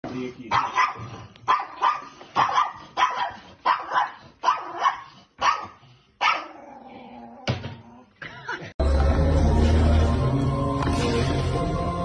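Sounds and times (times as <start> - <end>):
small dog barking: 0.5 - 6.6.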